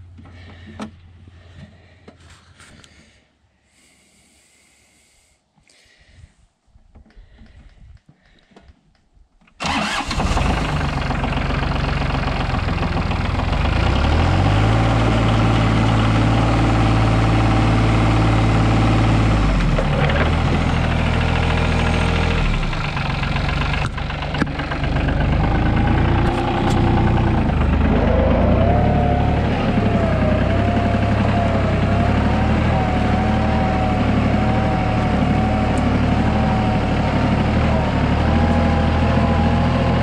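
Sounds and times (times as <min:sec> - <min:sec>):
tractor engine running: 0:09.6 - 0:40.0.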